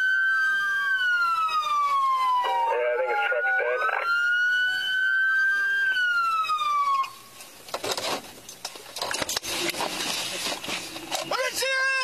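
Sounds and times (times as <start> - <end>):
police siren wailing: 0.0 - 7.4.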